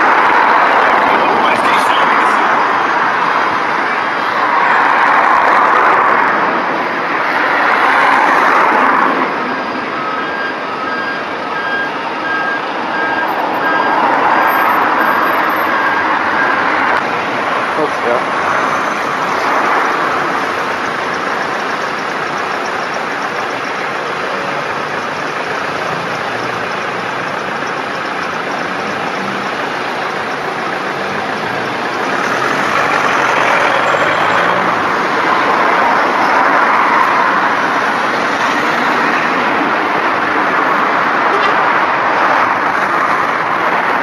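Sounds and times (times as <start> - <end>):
bus engines idling: 0.0 - 4.3, 9.1 - 44.0.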